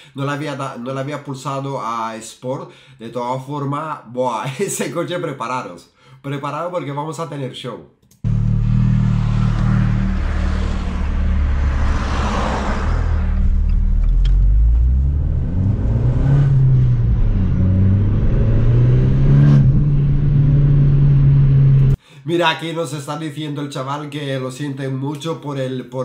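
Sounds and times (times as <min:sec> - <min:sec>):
car engine accelerating: 0:08.2 - 0:22.0.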